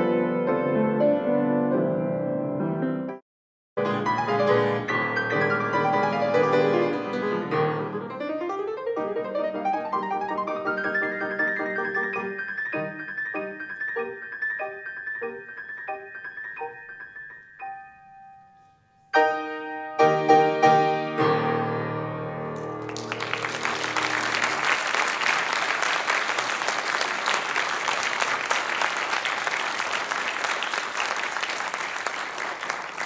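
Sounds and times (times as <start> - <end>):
grand piano playing: 0.0 - 3.2, 3.8 - 25.6
audience applause: 22.6 - 33.0.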